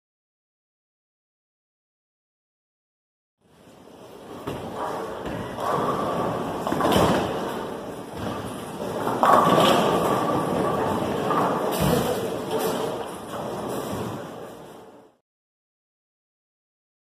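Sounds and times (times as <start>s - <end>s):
bowling alley clatter: 4.1s - 15.0s
bowling ball rolling on lane: 4.4s - 14.4s
bowling pins crashing: 4.4s - 14.4s.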